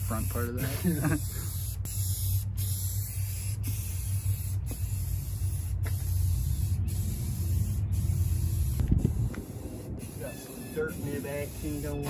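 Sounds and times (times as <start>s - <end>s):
spray can hissing: 0.0s - 12.0s
low rumble: 3.9s - 11.6s.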